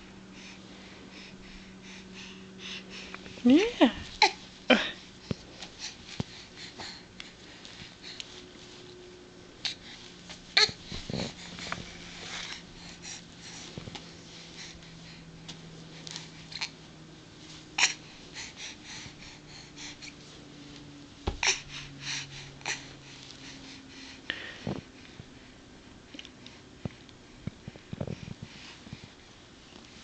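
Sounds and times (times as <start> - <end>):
baby grunting and snuffling: 10.5 - 11.5, 21.4 - 21.8
soft thump: 21.2 - 21.5.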